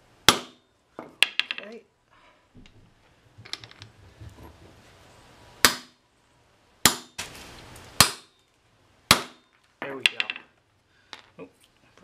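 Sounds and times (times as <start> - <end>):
hammer striking metal: 8.0 - 8.4, 9.1 - 10.4.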